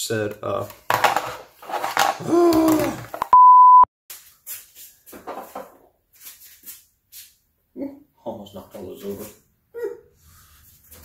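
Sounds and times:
man talking: 0:00.0 - 0:00.8, 0:07.8 - 0:09.4
censor bleep tone: 0:03.3 - 0:03.9.

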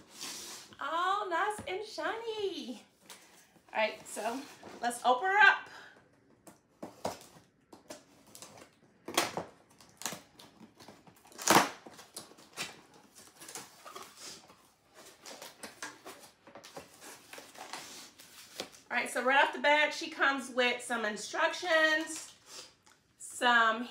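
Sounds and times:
tape peeling and box rustling: 0:06.5 - 0:18.8
scissors cutting packing tape: 0:11.2 - 0:12.8.

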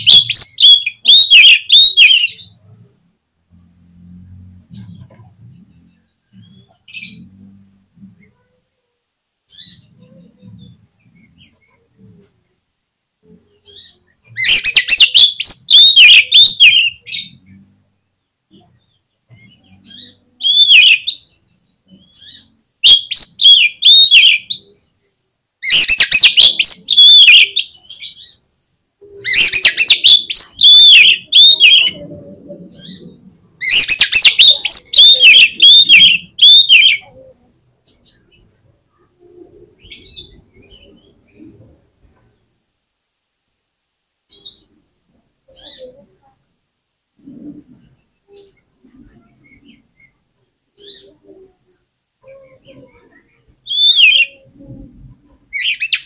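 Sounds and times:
bird singing whistles: 0:00.0 - 0:02.5, 0:14.4 - 0:17.0, 0:22.8 - 0:24.7, 0:25.7 - 0:27.9, 0:29.3 - 0:32.0, 0:33.6 - 0:37.0, 0:53.7 - 0:54.3.

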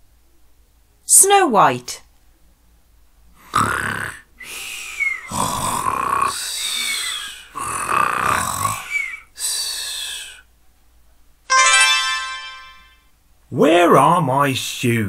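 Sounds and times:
cartoon snoring: 0:03.4 - 0:10.4.

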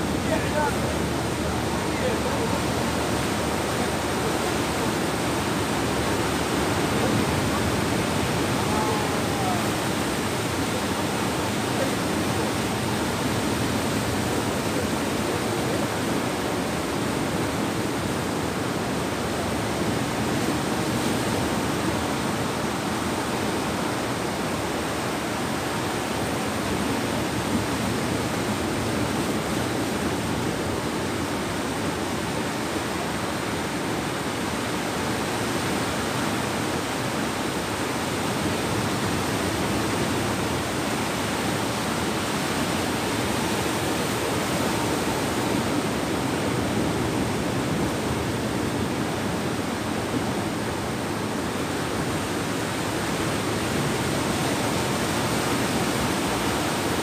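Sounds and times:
sea surf breaking on sand: 0:00.0 - 0:57.0.

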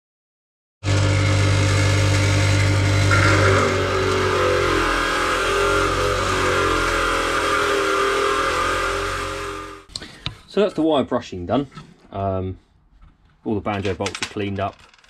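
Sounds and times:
bench grinder wire wheel running: 0:00.8 - 0:09.9.

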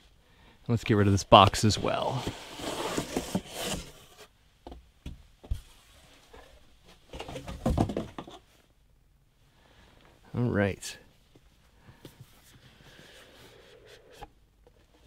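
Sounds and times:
cardboard box scraping and rustling: 0:01.5 - 0:04.3.

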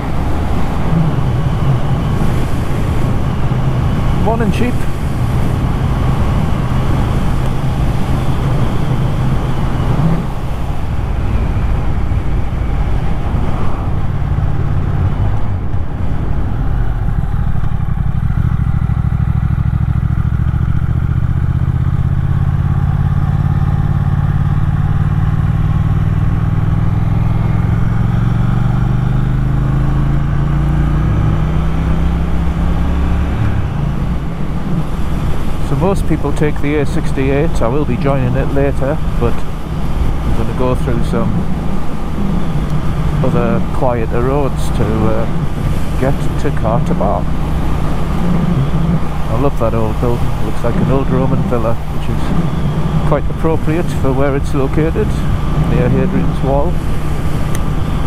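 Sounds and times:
wind rush: 0:00.0 - 0:19.3, 0:30.9 - 0:58.0
motorcycle engine running: 0:00.0 - 0:58.0.

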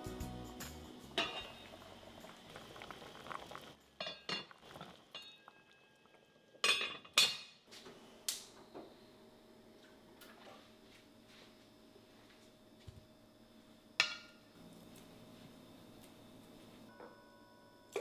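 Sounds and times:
loud clanks of pot: 0:01.2 - 0:01.6, 0:06.6 - 0:07.6
pot lid clinking: 0:01.2 - 0:01.7, 0:06.6 - 0:07.5.

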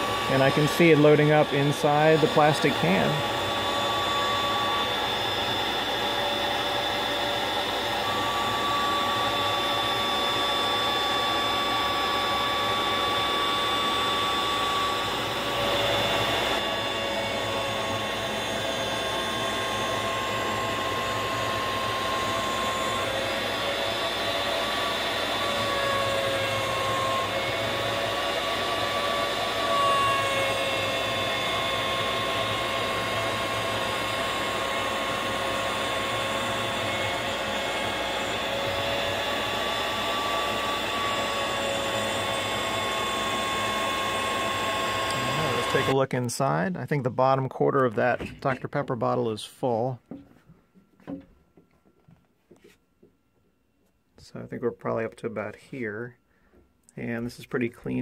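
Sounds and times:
router cutting wood: 0:00.0 - 0:46.0
shop vacuum running: 0:00.0 - 0:50.2.

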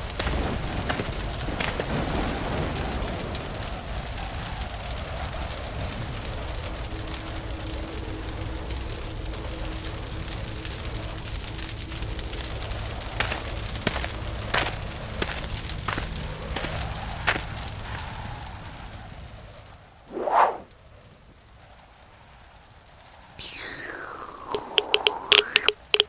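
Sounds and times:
fire crackling: 0:00.0 - 0:26.0
fire popping: 0:00.0 - 0:26.0.

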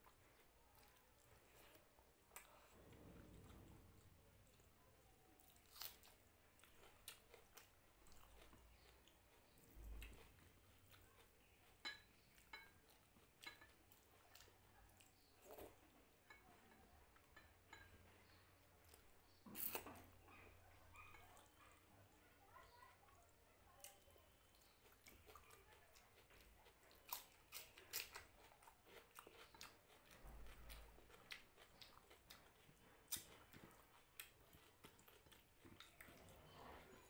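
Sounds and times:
chewing: 0:00.0 - 0:37.0.

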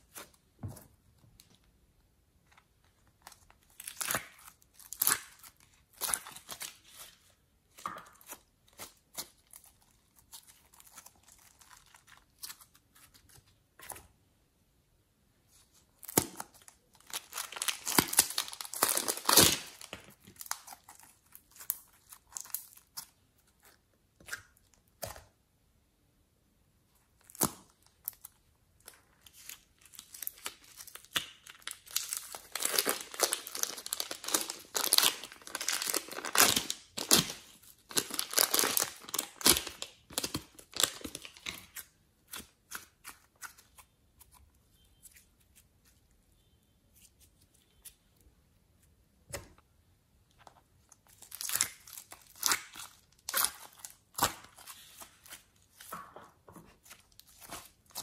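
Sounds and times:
crinkling and tearing: 0:16.0 - 0:23.7, 0:27.2 - 0:43.8, 0:50.4 - 0:58.0.

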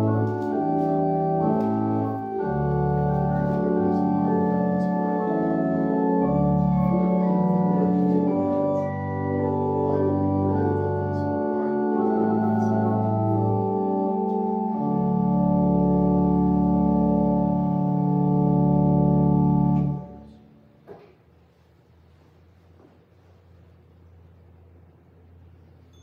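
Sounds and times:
organ playing sustained chords: 0:00.0 - 0:20.6.

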